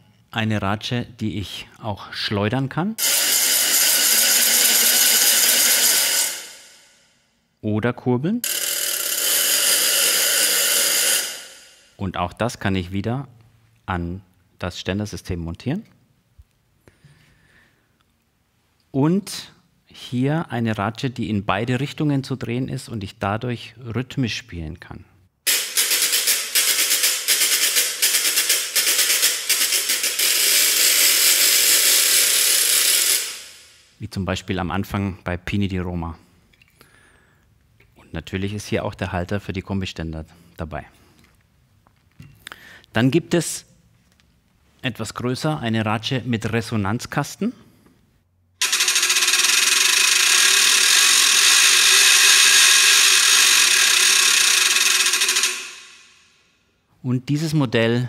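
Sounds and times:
wooden crank ratchet rattling: 0:03.0 - 0:06.9, 0:08.4 - 0:11.9, 0:25.5 - 0:33.8, 0:48.6 - 0:56.3.

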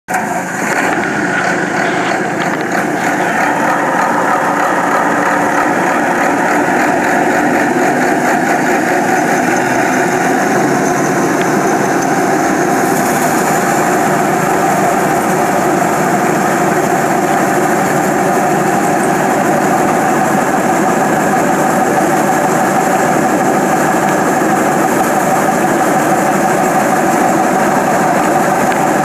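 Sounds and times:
diesel engine running: 0:00.1 - 0:29.0
water jet hissing: 0:00.1 - 0:29.0.

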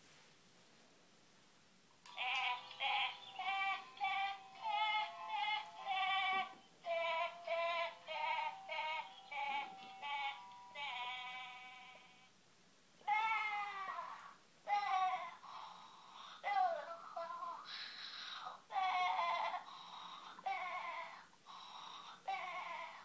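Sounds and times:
toy electronic voice singing lullaby: 0:02.1 - 0:12.3, 0:13.0 - 0:17.7, 0:18.7 - 0:21.2, 0:22.0 - 0:23.0.

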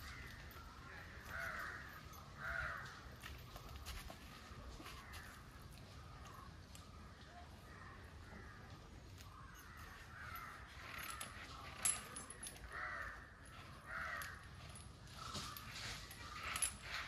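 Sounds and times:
crows cawing: 0:00.0 - 0:03.3, 0:04.8 - 0:05.5, 0:07.7 - 0:11.5, 0:12.6 - 0:16.4.

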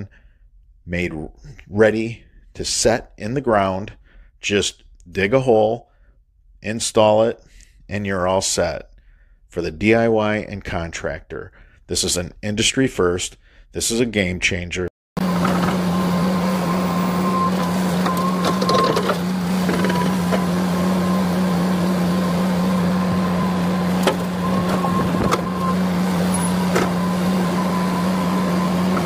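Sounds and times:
excavator engine droning: 0:15.2 - 0:29.0
thin whine: 0:15.2 - 0:29.0.

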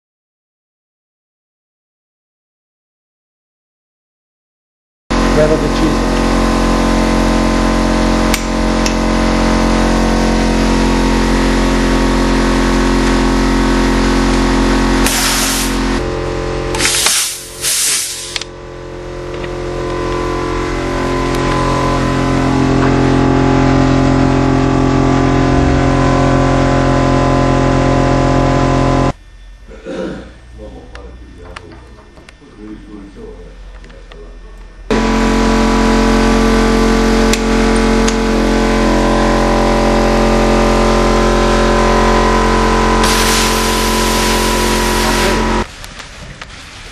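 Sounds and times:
steady hum: 0:05.1 - 0:45.7
loud hiss of compressed air: 0:15.0 - 0:16.0, 0:16.7 - 0:18.4, 0:43.0 - 0:45.5.

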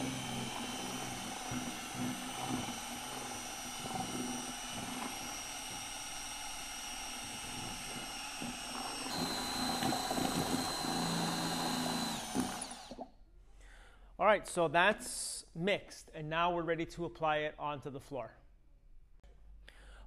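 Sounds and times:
drill mixer motor whine: 0:00.0 - 0:13.1.

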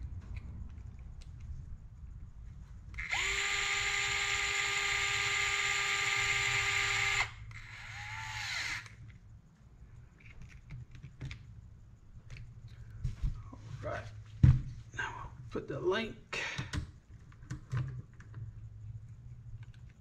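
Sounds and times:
electric screwdriver whining: 0:03.0 - 0:09.0.

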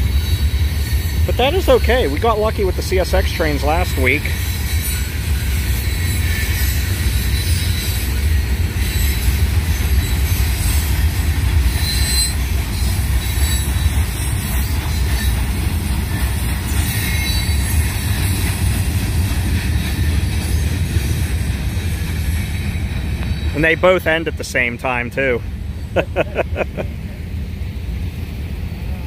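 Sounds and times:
high wheel squeal: 0:00.0 - 0:26.2
train wheels rumbling on rails: 0:00.0 - 0:29.0.

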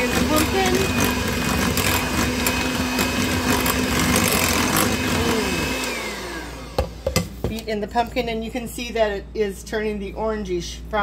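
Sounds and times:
electric hand mixer whining: 0:00.0 - 0:07.2.

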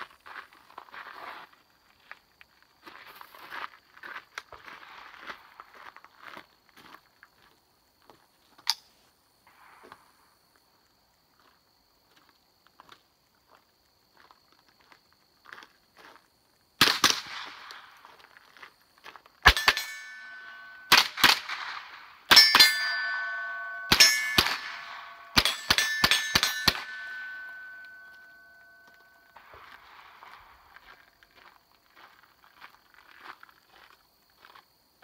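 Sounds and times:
rifle shots: 0:16.8 - 0:17.9, 0:19.4 - 0:28.8
lingering metallic ringing: 0:19.5 - 0:31.2.

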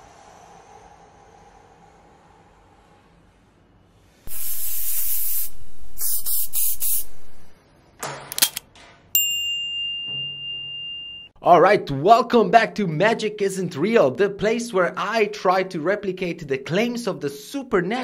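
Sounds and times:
loud hissing whoosh: 0:00.0 - 0:07.6
notification bell ding: 0:09.2 - 0:11.4.

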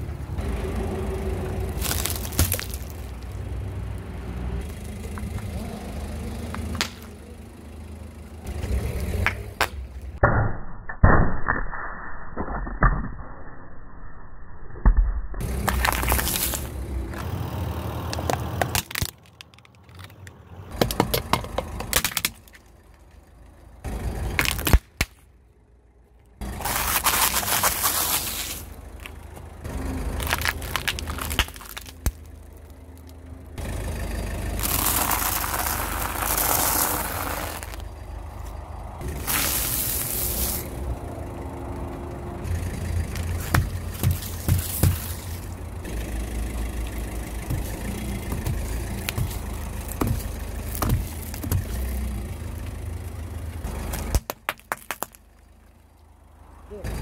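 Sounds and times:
car low rumble: 0:00.0 - 0:10.3, 0:14.5 - 0:57.0
tyre crushing small objects: 0:01.8 - 0:03.2, 0:15.5 - 0:17.3, 0:18.2 - 0:22.7, 0:24.3 - 0:25.2, 0:26.5 - 0:29.2, 0:30.1 - 0:33.2, 0:34.6 - 0:37.9, 0:43.1 - 0:45.5, 0:47.4 - 0:51.9, 0:53.9 - 0:55.3.

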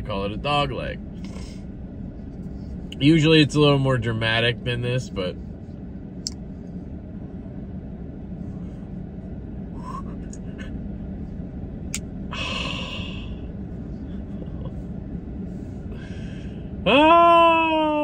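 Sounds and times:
low hum inside truck cab: 0:00.0 - 0:18.0
breathy gasp: 0:16.0 - 0:16.7.

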